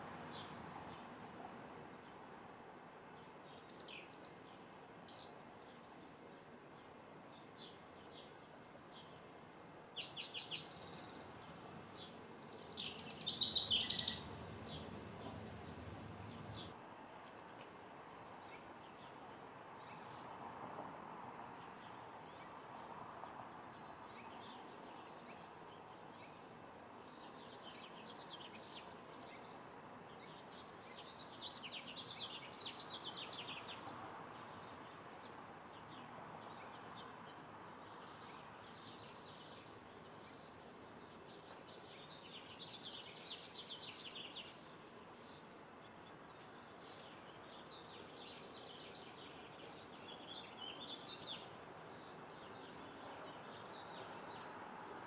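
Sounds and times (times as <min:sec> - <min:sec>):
faint background hiss: 0:00.0 - 0:55.0
wren trilled song: 0:12.5 - 0:14.3.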